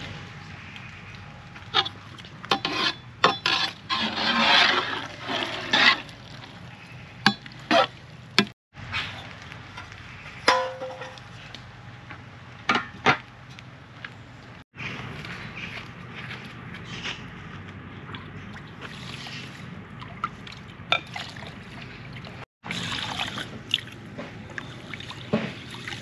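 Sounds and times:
stirring and scraping: 0:01.6 - 0:08.5
utensils knocking pots and dishes: 0:10.5 - 0:11.2.

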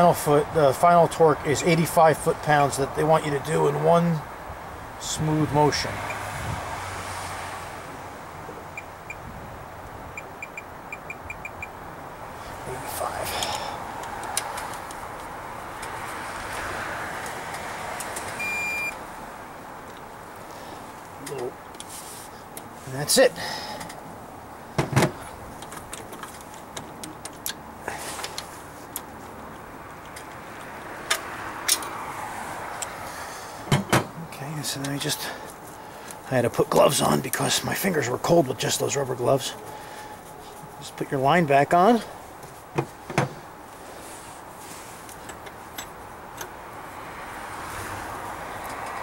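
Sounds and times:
steady rushing hiss: 0:19.0 - 0:31.0
metallic clicks of fuel line: 0:45.1 - 0:46.6.

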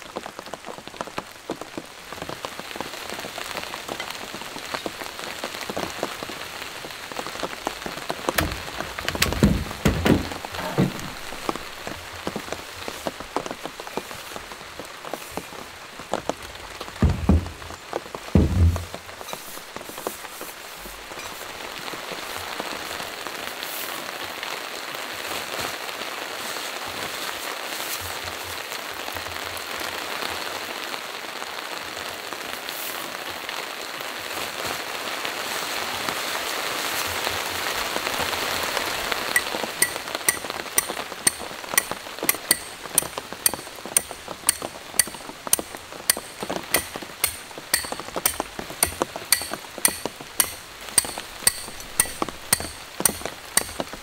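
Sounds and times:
steady rain: 0:00.0 - 0:54.0
stake being hammered: 0:08.4 - 0:11.0, 0:39.4 - 0:54.0.

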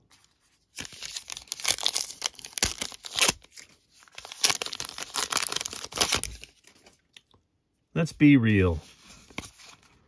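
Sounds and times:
card pack wrapper tearing: 0:00.7 - 0:06.9.

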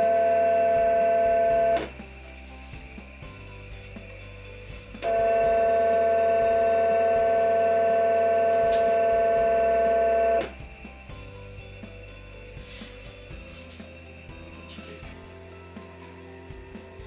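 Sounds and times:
electric motor whine: 0:00.0 - 0:02.4, 0:05.0 - 0:10.8
low quieter hum: 0:00.0 - 0:12.5.

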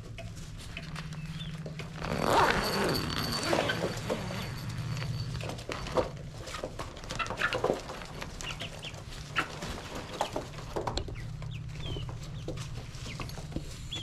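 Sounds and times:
steady low hum: 0:00.0 - 0:07.2
young chickens peeping and clucking: 0:00.2 - 0:01.9, 0:05.9 - 0:14.0.

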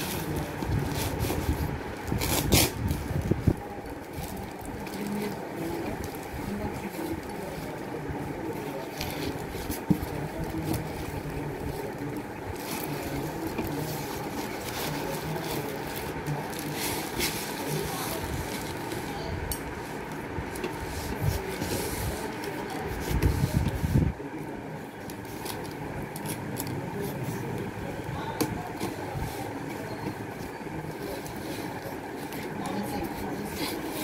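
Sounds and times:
paper parcel crinkling: 0:00.0 - 0:19.3
low rubbing of handling: 0:00.0 - 0:34.0
steady background hum: 0:00.0 - 0:34.0.

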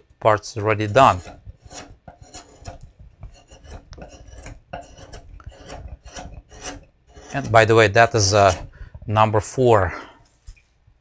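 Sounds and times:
gouge shaving wood: 0:00.7 - 0:09.0.

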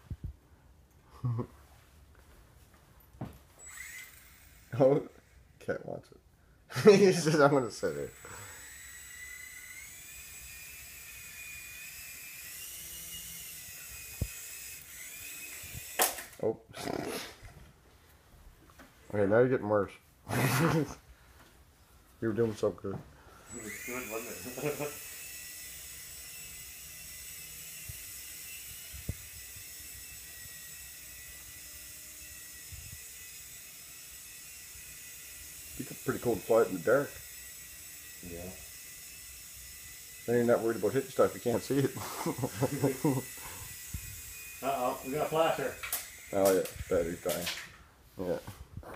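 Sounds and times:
rc helicopter rotors whining: 0:03.6 - 0:05.6, 0:06.8 - 0:16.4, 0:23.5 - 0:47.8.

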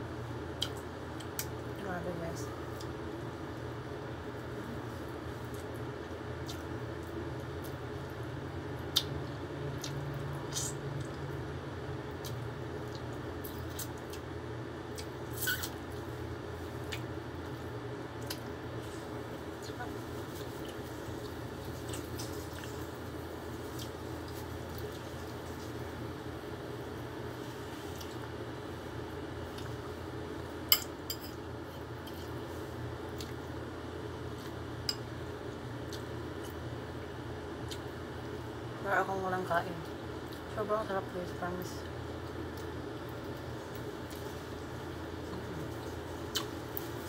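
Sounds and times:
steady low hum: 0:00.0 - 0:47.0
person chewing: 0:06.4 - 0:07.8, 0:08.8 - 0:11.2, 0:33.1 - 0:33.5, 0:37.7 - 0:37.9, 0:42.2 - 0:47.0
metal spoon clinking on dish: 0:30.7 - 0:31.4.

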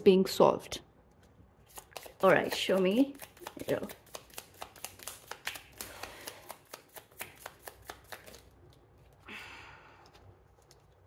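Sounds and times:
soft rustle of cards: 0:01.0 - 0:09.3, 0:09.9 - 0:11.0
cards shuffling clacks: 0:01.7 - 0:08.8.

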